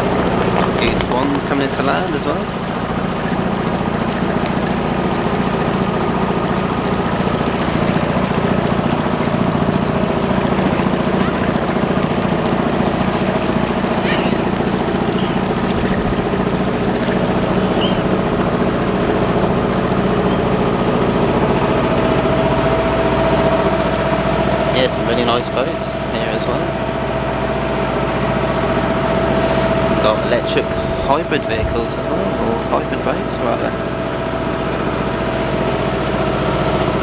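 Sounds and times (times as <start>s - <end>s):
boat engine humming: 0.0s - 37.0s
water washing along hull: 0.0s - 37.0s.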